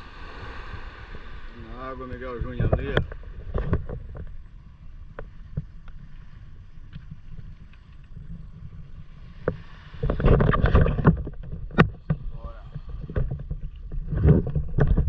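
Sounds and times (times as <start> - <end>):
low wind rumble: 0.0 - 15.0
shallow water lapping: 0.0 - 15.0
splashing and knocks: 9.4 - 15.0.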